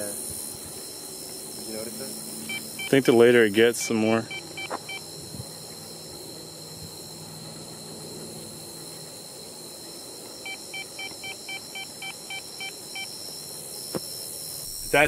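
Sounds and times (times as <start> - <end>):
high drone of night insects: 0.0 - 15.0
detector beeping: 1.2 - 5.2, 10.4 - 13.2.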